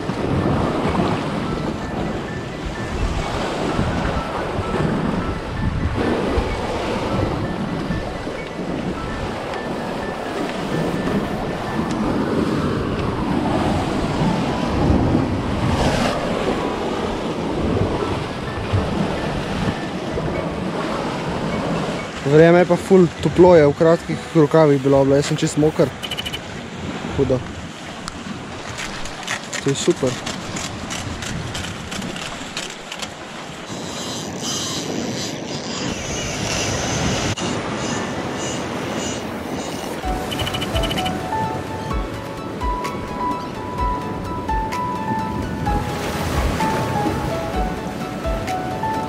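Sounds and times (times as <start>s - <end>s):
wind buffeting microphone: 0.0s - 24.3s, 25.2s - 49.0s
sea surf breaking on rocks: 0.0s - 33.9s, 36.4s - 49.0s.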